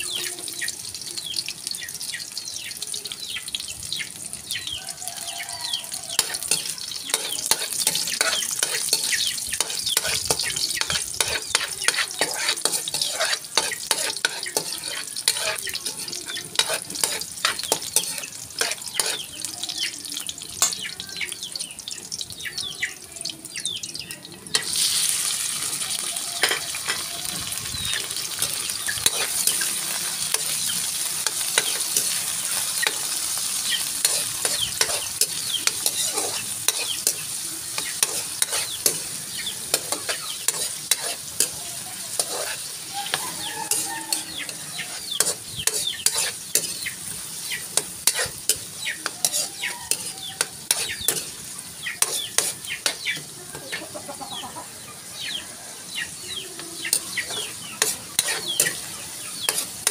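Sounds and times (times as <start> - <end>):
vegetables sizzling in hot oil: 0.0 - 59.9
metal spatula scraping a wok: 6.1 - 19.3, 24.5 - 53.6, 56.9 - 59.9.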